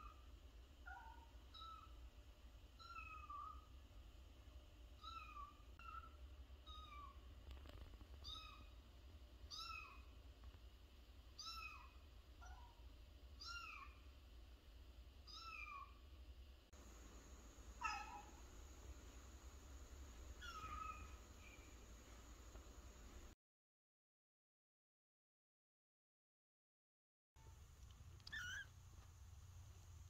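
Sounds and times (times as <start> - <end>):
kitten meowing: 8.2 - 8.7, 9.5 - 10.1, 11.4 - 12.7, 13.4 - 14.0, 15.3 - 15.9, 17.8 - 18.4, 20.4 - 21.2, 28.2 - 28.7.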